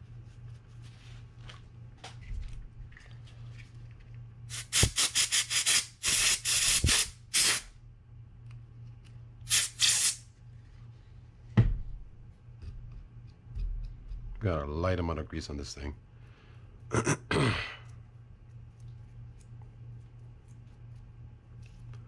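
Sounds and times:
paper towel rustling: 0.0s - 4.1s
aerosol spray hissing bursts: 4.5s - 7.7s, 9.5s - 10.2s.

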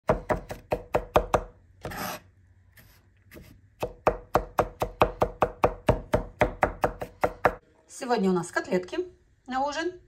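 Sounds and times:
knife chopping on wooden board: 0.0s - 2.2s, 3.3s - 7.6s
knife scraping board: 1.8s - 3.6s.

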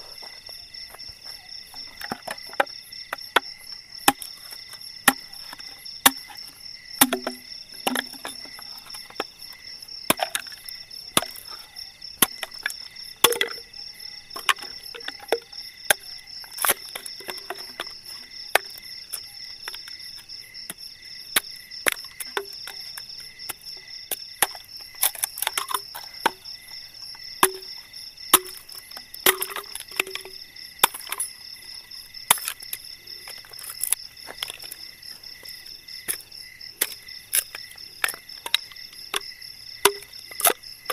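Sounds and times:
night insects chirring: 0.0s - 40.9s
sticks being chopped and broken: 5.1s - 6.4s, 7.0s - 9.3s, 12.2s - 13.7s, 27.4s - 27.7s, 28.3s - 31.3s, 36.8s - 40.9s.

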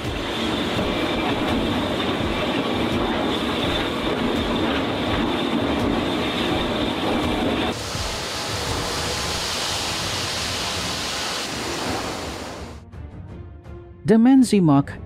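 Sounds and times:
industrial machinery din: 0.0s - 12.8s.

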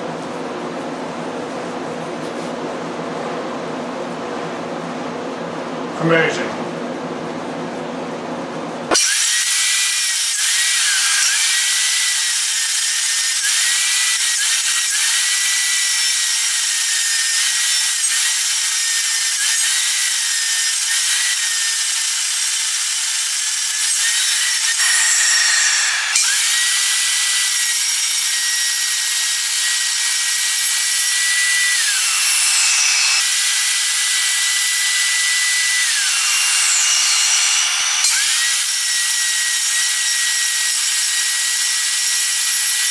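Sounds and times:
circular saw motor whine: 8.9s - 42.9s
saw blade cutting wood: 8.9s - 42.9s.

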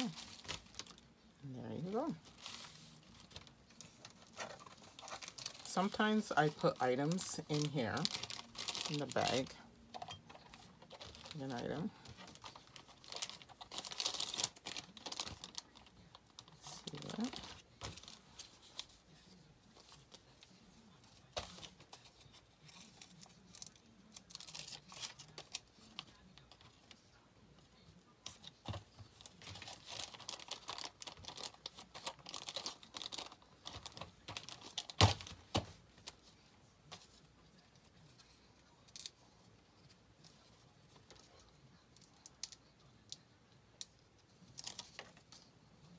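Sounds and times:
plastic bag crinkling: 0.0s - 1.1s, 1.8s - 18.8s, 29.1s - 35.4s.

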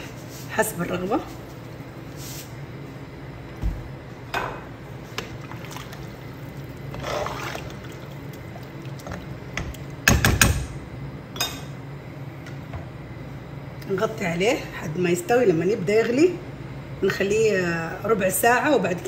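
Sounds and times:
liquid sloshing in a pot: 4.9s - 10.1s.

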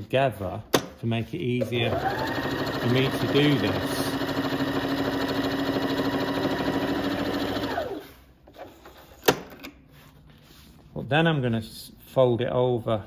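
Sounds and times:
sewing machine running: 1.6s - 8.2s.

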